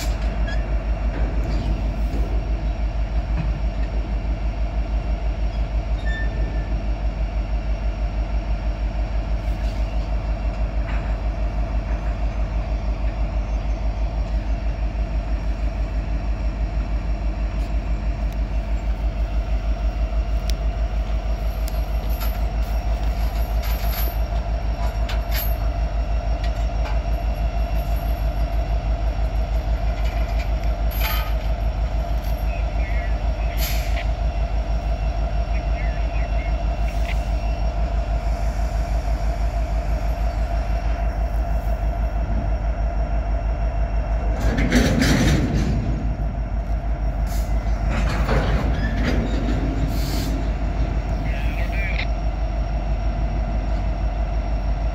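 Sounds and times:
diesel locomotive engine rumble: 0.0s - 54.9s
steady whine: 6.5s - 54.9s.

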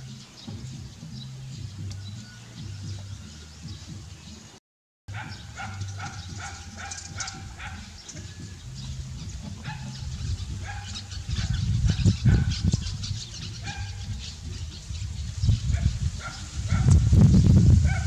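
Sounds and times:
squeaky animal calls: 5.1s - 16.6s.

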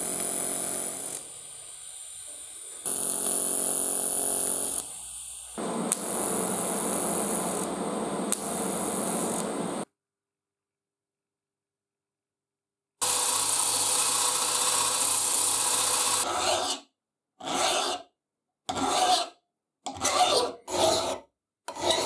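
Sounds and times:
welding arc buzzing: 0.0s - 1.4s, 2.5s - 9.9s, 13.0s - 16.2s.

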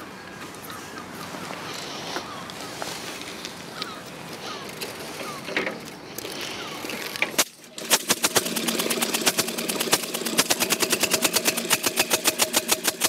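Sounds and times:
single-cylinder engine running: 6.5s - 13.0s.

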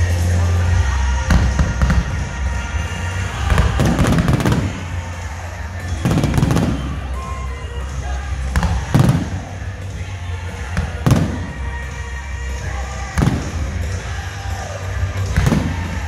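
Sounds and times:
music playing: 0.0s - 16.0s
firework bangs and crackles: 1.2s - 16.0s.

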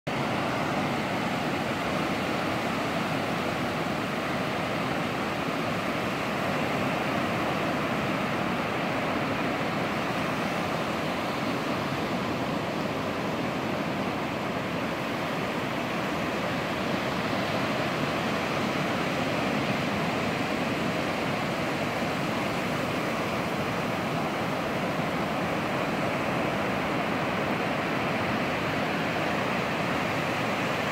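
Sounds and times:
ocean surf breaking on beach: 0.1s - 30.9s.

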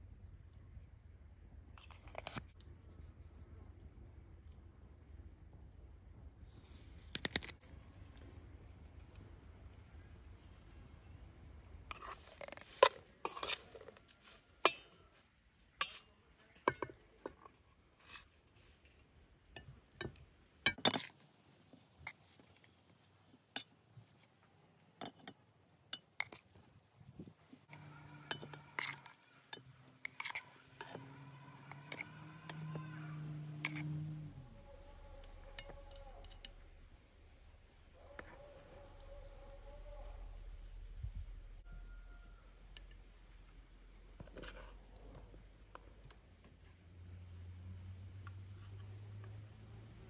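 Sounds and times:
metal spoon clinking on pot and plates: 27.7s - 33.9s.

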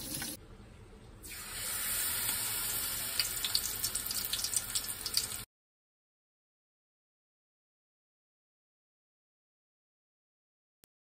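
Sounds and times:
oil sizzling: 0.0s - 0.4s, 1.3s - 5.5s.

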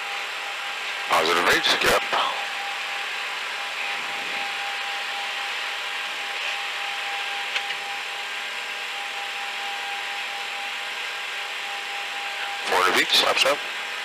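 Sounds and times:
thin steady whine: 0.0s - 14.0s
jet cockpit rushing hiss: 3.4s - 6.3s.

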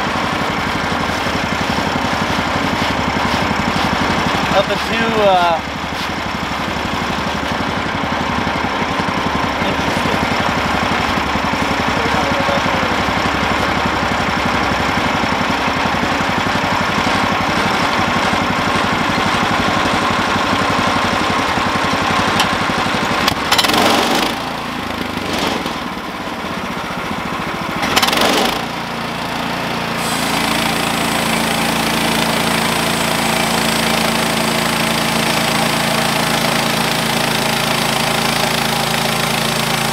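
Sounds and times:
sawmill engine running: 0.0s - 39.9s
band blade cutting log: 27.8s - 28.7s.

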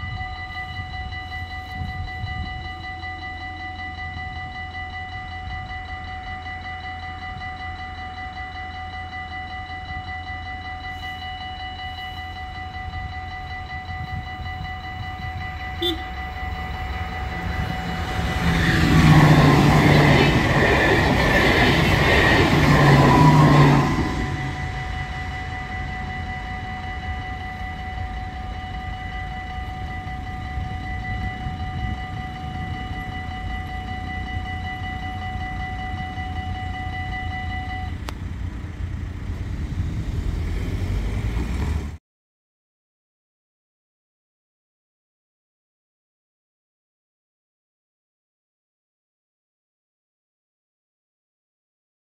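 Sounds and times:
level crossing bell ringing: 0.0s - 38.0s
train rushing past: 13.4s - 42.0s.

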